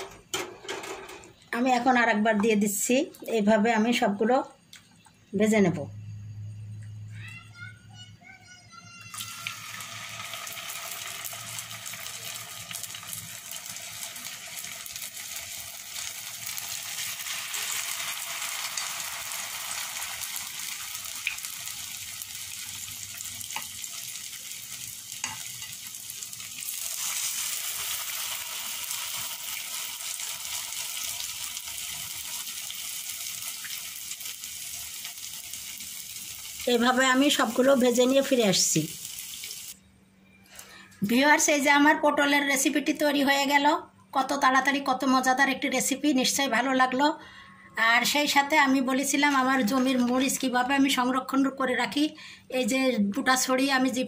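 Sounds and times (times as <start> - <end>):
batter sizzling in hot oil: 9.1 - 39.8.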